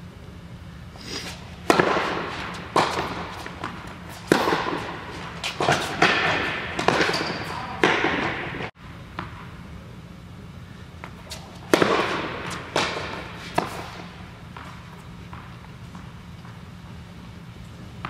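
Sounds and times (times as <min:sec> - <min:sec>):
rackets hitting tennis balls: 0:01.1 - 0:09.6, 0:11.0 - 0:17.0
tennis balls bouncing on court: 0:01.6 - 0:09.6, 0:11.0 - 0:16.7.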